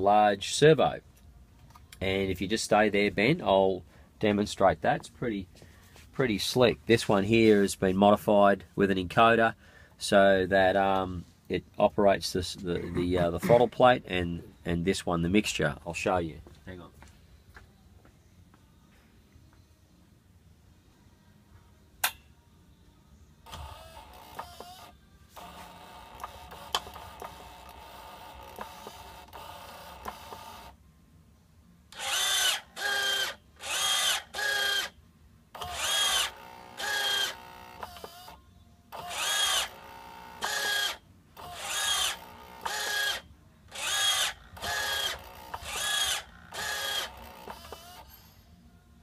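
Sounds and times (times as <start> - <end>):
servo motor whirring: 23.5 - 30.6, 32.0 - 34.9, 35.6 - 38.4, 39.0 - 48.2
short whining servo bursts: 32.0 - 34.9, 35.6 - 38.4, 39.0 - 48.4.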